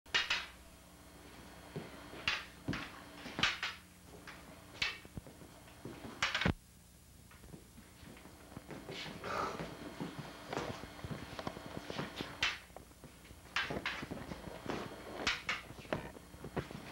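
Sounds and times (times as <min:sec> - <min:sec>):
wooden poles clacking: 0:00.1 - 0:00.6, 0:02.2 - 0:05.0, 0:13.5 - 0:14.1, 0:15.2 - 0:16.0
faint steady hum: 0:00.1 - 0:16.9.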